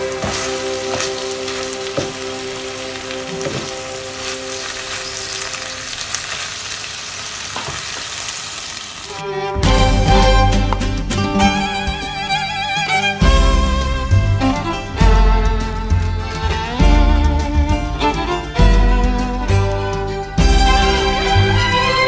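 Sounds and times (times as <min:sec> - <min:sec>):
food sizzling in frying pan: 0:00.0 - 0:09.3
loud music: 0:09.2 - 0:22.0.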